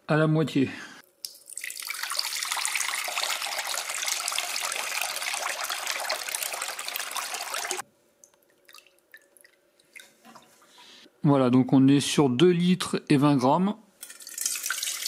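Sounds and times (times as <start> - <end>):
water dripping: 1.0 - 10.9, 14.0 - 15.0
water pouring into glass bowl: 1.2 - 7.8, 14.1 - 15.0.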